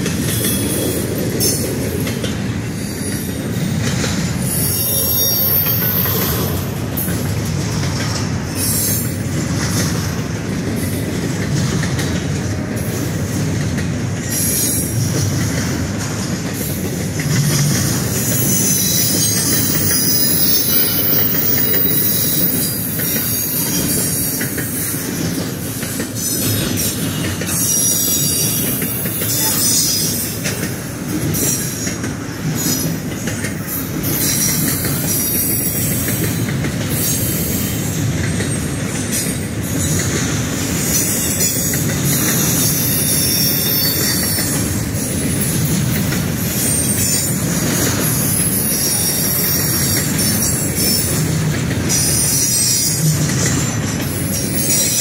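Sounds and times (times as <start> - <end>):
train wheels rumbling on rails: 0.0 - 55.0
high-pitched wheel squeal: 4.5 - 6.7, 18.1 - 24.9, 41.0 - 45.4.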